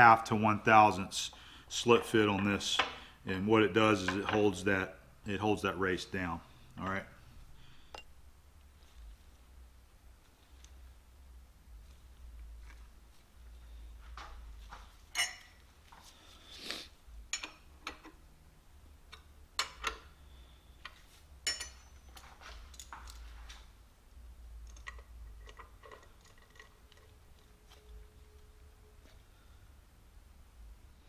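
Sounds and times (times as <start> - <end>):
metal clamps and wrench clinking: 15.1 - 15.6, 21.4 - 23.2, 24.7 - 27.8.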